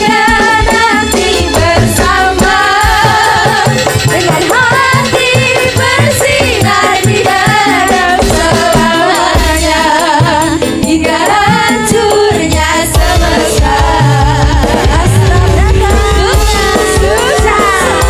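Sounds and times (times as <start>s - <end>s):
drum beats: 0.0s - 18.0s
gamelan band music: 0.0s - 18.0s
women singing into microphones: 0.0s - 18.0s.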